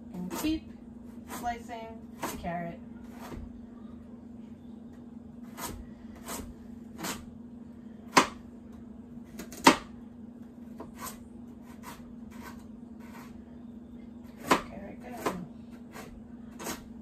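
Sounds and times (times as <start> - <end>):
faint steady hum: 0.0 - 17.0
knife chopping on cutting board: 8.1 - 8.4, 9.3 - 9.9, 14.4 - 16.9.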